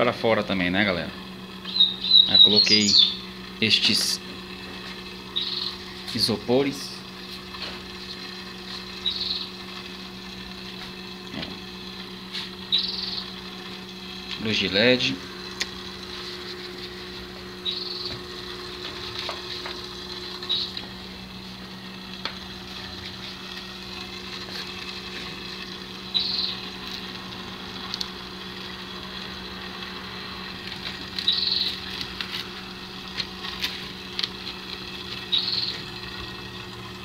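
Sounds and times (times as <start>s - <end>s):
pond pump humming: 0.0s - 37.0s
water trickling: 1.2s - 37.0s.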